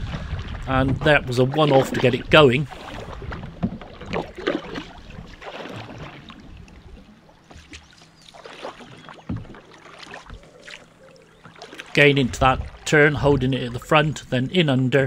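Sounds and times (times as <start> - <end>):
canoe paddle splashing in water: 0.0 - 13.8
water dripping off paddle: 2.7 - 12.9.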